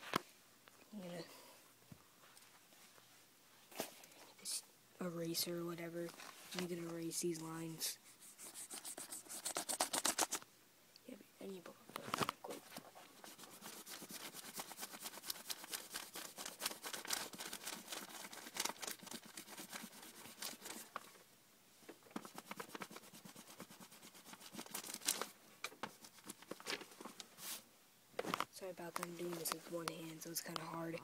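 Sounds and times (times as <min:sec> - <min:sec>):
eraser scrubbing on paper: 0:08.1 - 0:10.4, 0:13.2 - 0:20.9, 0:22.2 - 0:25.2.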